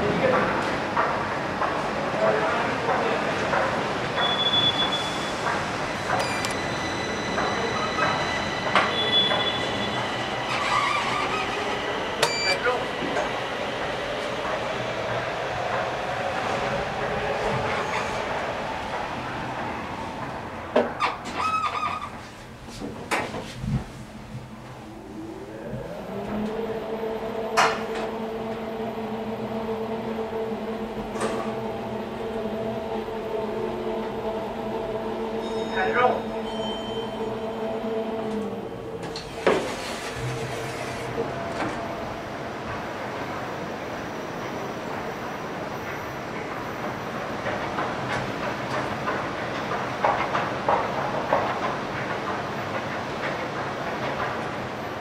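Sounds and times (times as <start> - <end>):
train running: 0.0 - 21.5, 22.2 - 55.0
elevator humming: 3.5 - 23.1, 24.0 - 55.0
high squeal: 6.2 - 12.8, 35.4 - 37.3
station rumble and hiss: 23.3 - 55.0.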